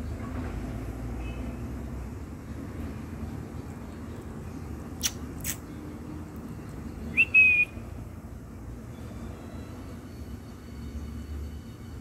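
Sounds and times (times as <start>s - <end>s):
person whistling: 7.1s - 7.8s.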